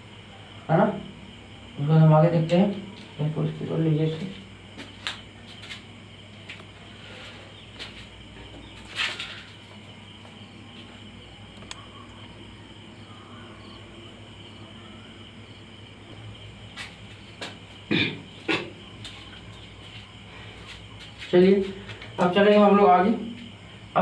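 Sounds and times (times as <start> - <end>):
soft clicks: 11.6 - 11.8.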